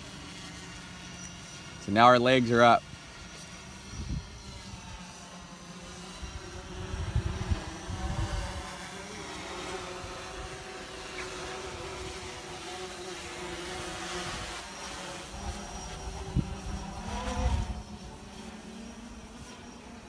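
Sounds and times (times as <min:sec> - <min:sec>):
drone propellers humming: 0:00.0 - 0:20.0
wind buffeting microphone: 0:03.8 - 0:05.0, 0:06.2 - 0:08.7, 0:15.4 - 0:18.2.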